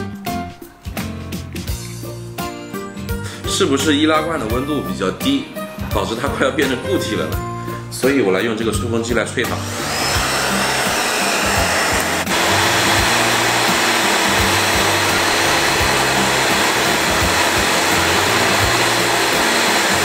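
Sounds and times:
hair dryer blowing air: 0:09.5 - 0:20.0.

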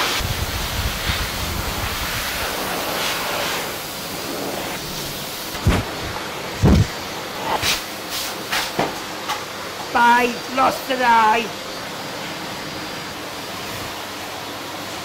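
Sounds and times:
dog dryer blowing air: 0:00.0 - 0:15.0
low thumps: 0:05.5 - 0:07.0.

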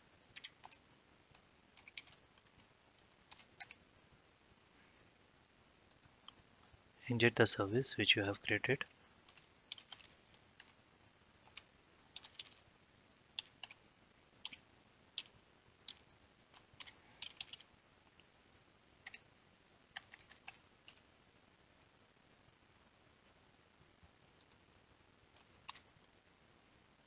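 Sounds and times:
faint keyboard keystrokes: 0:00.3 - 0:03.8, 0:09.3 - 0:10.8, 0:15.2 - 0:17.7.

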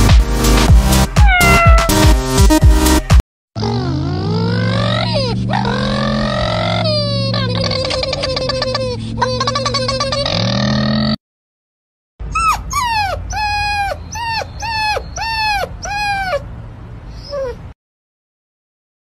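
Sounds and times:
puppy whining: 0:01.2 - 0:02.0, 0:03.6 - 0:10.4, 0:12.2 - 0:16.5, 0:17.1 - 0:17.8.

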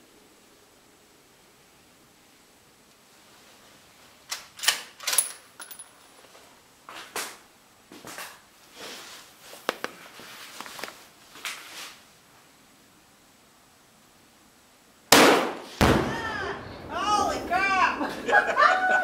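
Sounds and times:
rifle metal clicks and clinks: 0:04.3 - 0:06.1.

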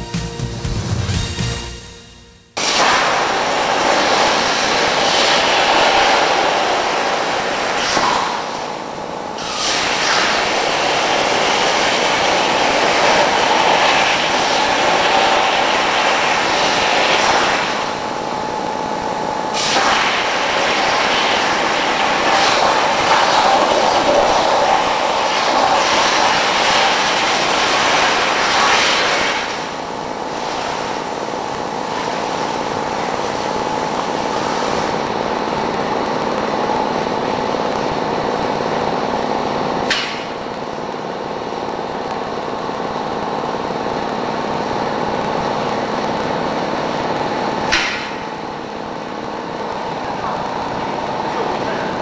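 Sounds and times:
cutting torch hissing: 0:02.6 - 0:18.6, 0:19.4 - 0:35.0.

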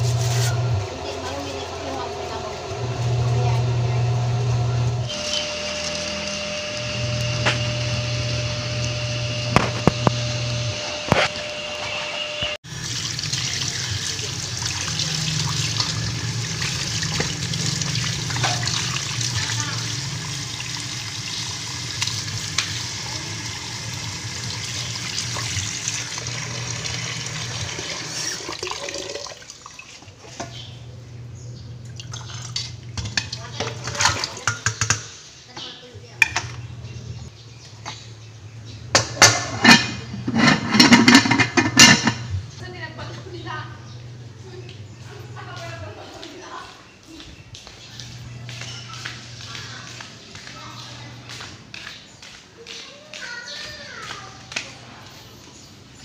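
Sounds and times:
mechanical hum: 0:00.0 - 0:28.6, 0:30.2 - 0:52.4
water splashing into pot: 0:12.6 - 0:30.4, 0:31.9 - 0:35.1
tap water running into sink: 0:12.7 - 0:30.1.

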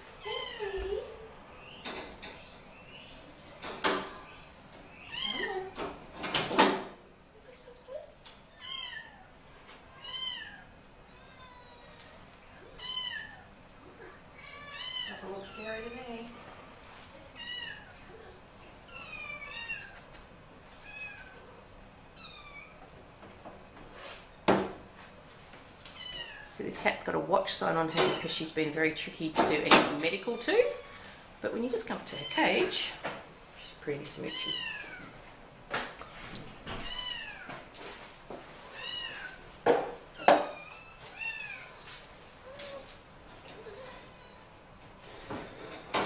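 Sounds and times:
cat meowing: 0:05.1 - 0:05.6, 0:08.6 - 0:09.3, 0:09.9 - 0:13.4, 0:36.8 - 0:37.6, 0:38.7 - 0:39.4.

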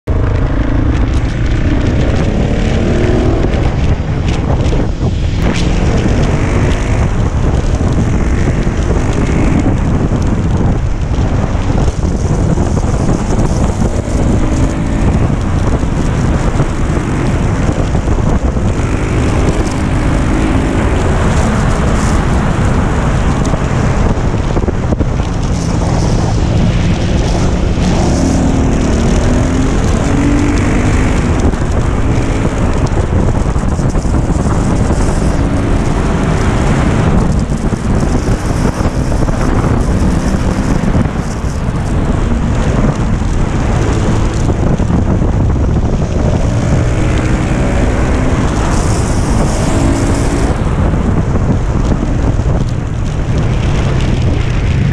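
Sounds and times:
motorcycle engine revving: 0:00.0 - 0:54.9
wind rushing over microphone: 0:00.0 - 0:54.9.

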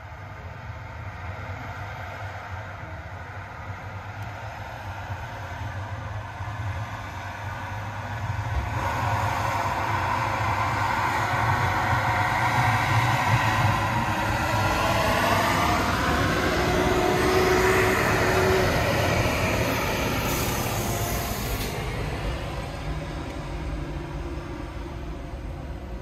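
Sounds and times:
truck engine driving past: 0:10.4 - 0:26.0.

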